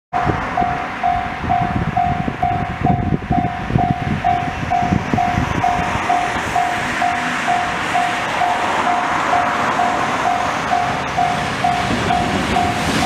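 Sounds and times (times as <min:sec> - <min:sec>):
freight train rumble: 0:00.2 - 0:13.0
level-crossing alarm dinging: 0:00.2 - 0:13.0.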